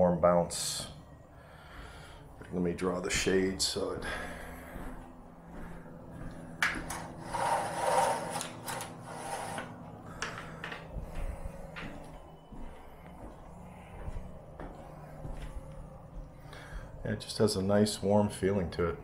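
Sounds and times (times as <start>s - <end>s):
window shade scraping: 6.9s - 9.8s.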